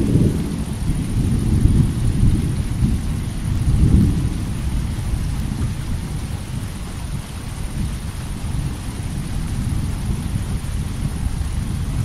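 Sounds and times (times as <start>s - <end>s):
rolling thunder: 0.0s - 6.8s
steady rain: 0.0s - 12.0s.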